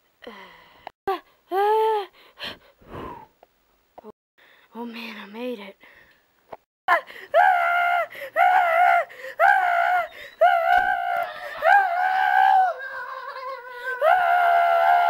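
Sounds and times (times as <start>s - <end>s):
high-pitched voice crying: 6.9s - 15.0s.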